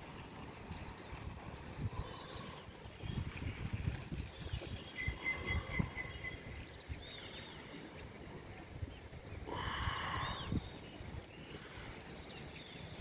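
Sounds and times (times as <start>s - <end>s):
birds chirping: 1.9s - 3.4s, 4.2s - 13.0s.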